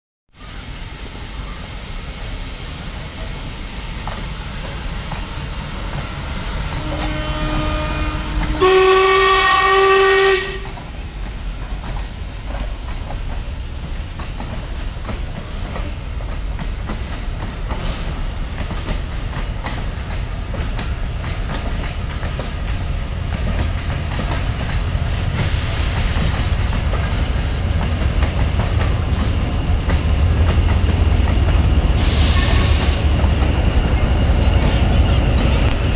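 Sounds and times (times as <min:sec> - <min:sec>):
steam hissing bursts: 0:00.4 - 0:07.3, 0:24.4 - 0:26.7, 0:31.8 - 0:33.2
train wheels rumbling on rails: 0:00.4 - 0:35.9
steam locomotive whistle: 0:06.7 - 0:10.8, 0:32.0 - 0:33.1.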